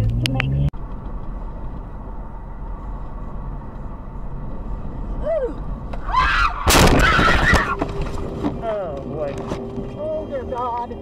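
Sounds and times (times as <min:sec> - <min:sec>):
car road and engine noise: 0:00.0 - 0:11.0
tyres squealing: 0:05.4 - 0:08.7
loud crash bang: 0:06.1 - 0:08.0.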